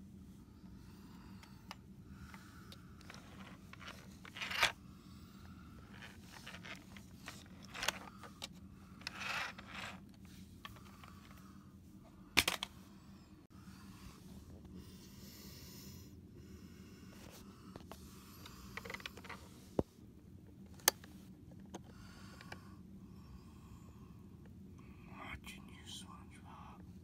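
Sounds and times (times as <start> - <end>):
plastic toy handling scrapes: 3.0 - 4.8, 5.8 - 8.4, 9.0 - 10.2.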